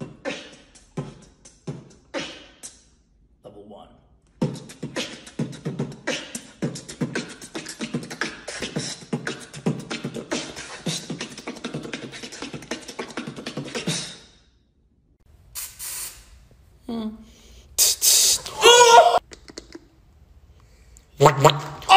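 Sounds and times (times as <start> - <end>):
man beatboxing: 0.0 - 2.9, 4.3 - 14.2.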